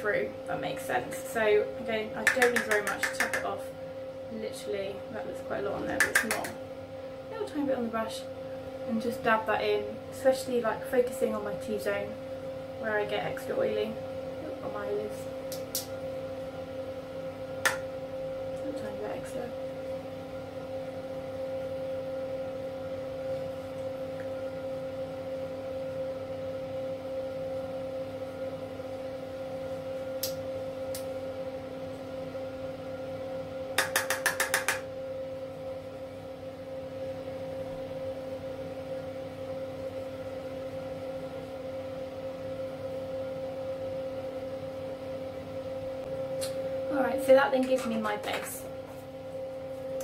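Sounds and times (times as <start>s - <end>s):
steady machine hum: 0.0s - 50.0s.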